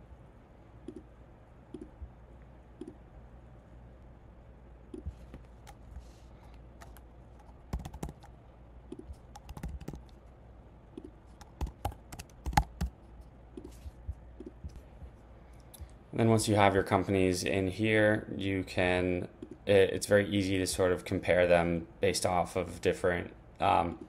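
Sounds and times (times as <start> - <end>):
keyboard keystrokes: 6.8 - 8.3, 8.9 - 10.1, 11.0 - 12.9.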